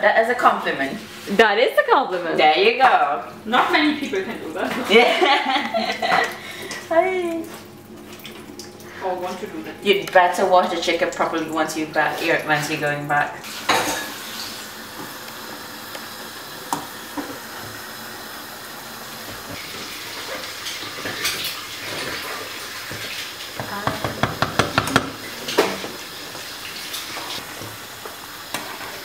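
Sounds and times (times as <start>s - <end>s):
liquid simmering in a pot: 13.2s - 29.0s
knocks: 23.6s - 25.2s.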